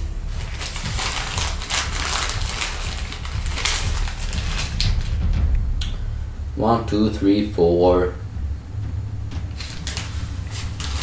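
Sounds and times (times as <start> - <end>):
plastic bag rustling: 0.0 - 5.4, 9.5 - 11.0
low hum: 0.0 - 11.0.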